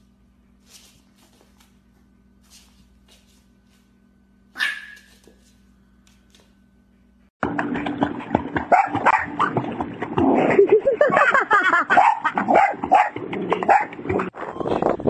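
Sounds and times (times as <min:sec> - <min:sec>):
dog barking and yipping: 0:04.6 - 0:05.3, 0:08.7 - 0:09.5, 0:11.9 - 0:14.0.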